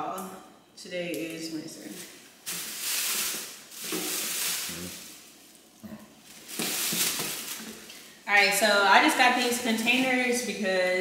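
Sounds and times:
plastic bags rustling and crinkling: 1.8s - 8.3s.

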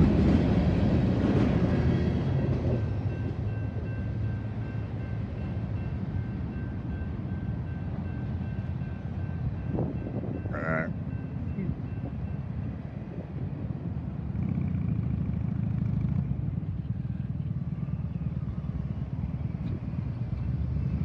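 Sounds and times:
cars idling and pulling away: 12.5s - 21.0s.

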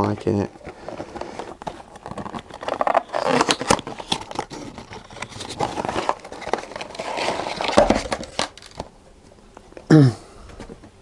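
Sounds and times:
cardboard packaging rustling: 0.0s - 8.9s
clicks and scrapes: 0.6s - 8.9s.

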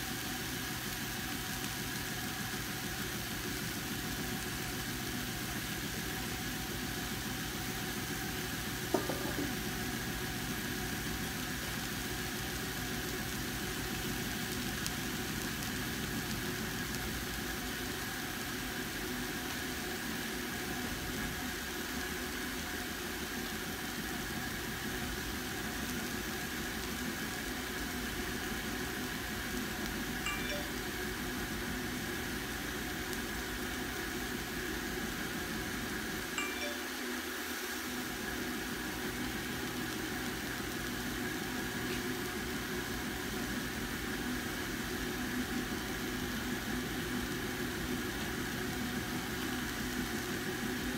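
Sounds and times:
mechanical hum: 0.0s - 50.9s
faint high whine: 30.2s - 31.2s, 36.2s - 38.2s.

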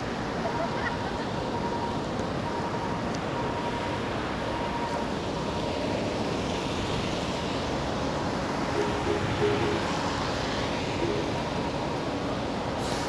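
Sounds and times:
tyres hissing on wet road: 0.0s - 13.0s
short pitched tone: 8.7s - 10.3s, 10.9s - 12.0s.

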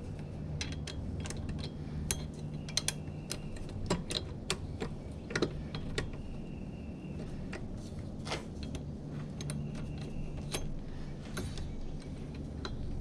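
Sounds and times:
low steady hum: 0.0s - 13.0s
metallic clicks and taps: 0.6s - 6.2s, 11.3s - 13.0s.

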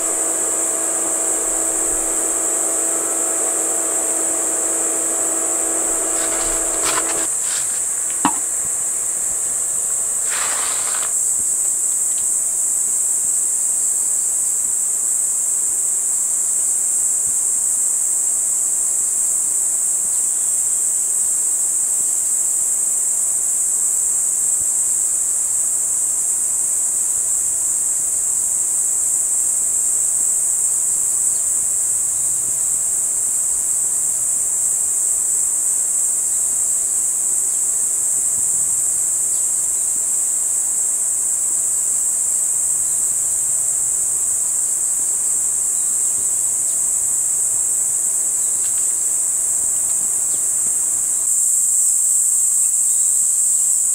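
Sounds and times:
faint steady hum: 0.0s - 12.2s
insects chirring: 0.0s - 16.8s, 26.2s - 53.9s.

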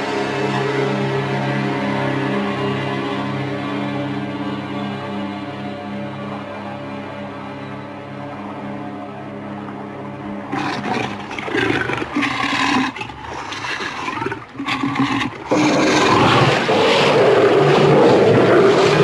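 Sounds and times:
big cat growling and roaring: 10.5s - 19.0s.

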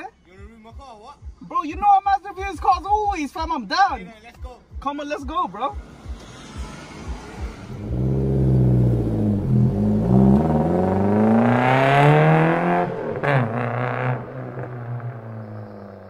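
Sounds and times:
car engine accelerating: 5.7s - 16.0s.

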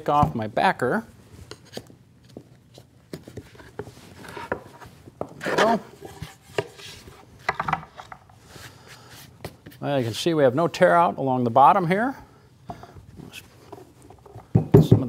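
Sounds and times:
wooden knocks and taps: 7.5s - 8.2s.

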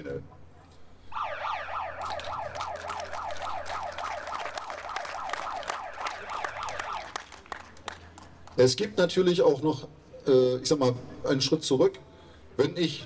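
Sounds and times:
electronic siren yelping: 1.1s - 7.3s.

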